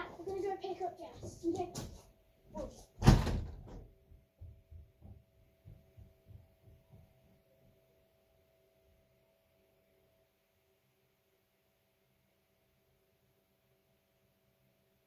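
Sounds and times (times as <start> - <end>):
door shutting with a thump: 3.0 - 3.9
faint steady hum: 3.9 - 15.0.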